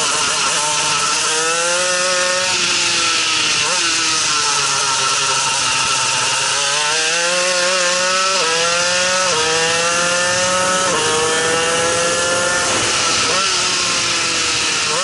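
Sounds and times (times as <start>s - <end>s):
kart engine at full throttle: 0.0s - 15.0s
wind noise: 10.3s - 14.8s.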